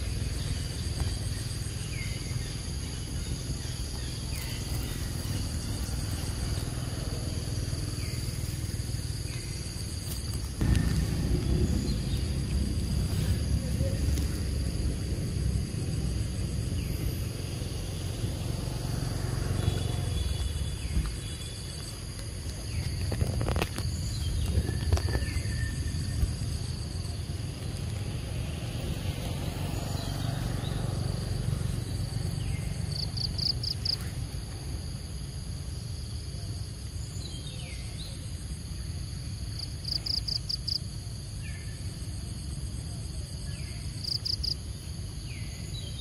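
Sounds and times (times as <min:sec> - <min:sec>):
low rumble: 0:00.0 - 0:33.4
insects trilling: 0:00.0 - 0:46.0.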